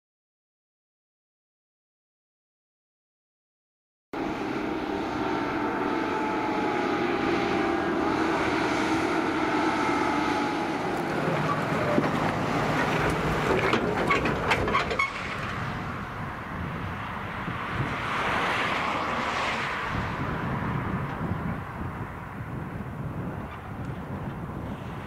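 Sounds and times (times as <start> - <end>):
tractor diesel engine passing: 4.2 - 25.0
trailer rattling and knocking: 10.8 - 16.2.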